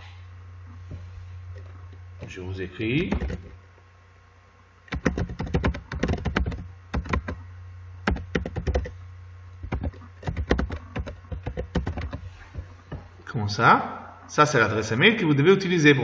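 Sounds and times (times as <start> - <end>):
steady low hum: 0.0 - 16.0
keyboard key clicks: 4.9 - 7.4.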